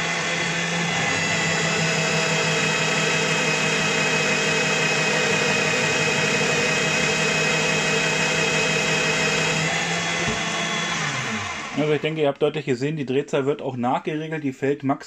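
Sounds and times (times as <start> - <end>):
drill press boring into wood: 5.4 - 12.0.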